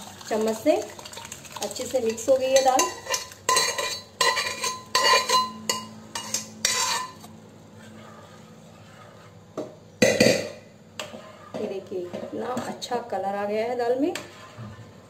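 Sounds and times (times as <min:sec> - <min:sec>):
metal spoon scraping bowl: 0:02.1 - 0:09.4, 0:11.0 - 0:12.9, 0:14.0 - 0:15.0.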